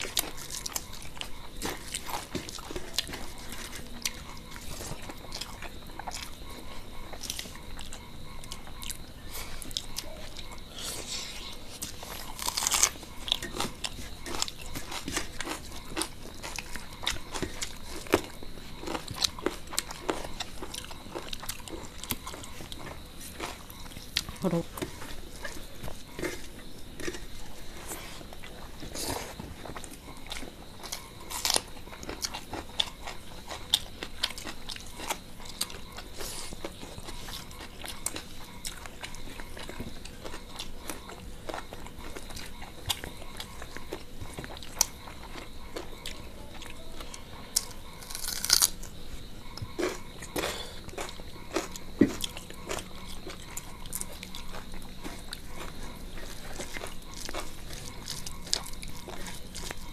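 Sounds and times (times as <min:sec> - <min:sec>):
people chewing food: 0:00.0 - 0:59.9.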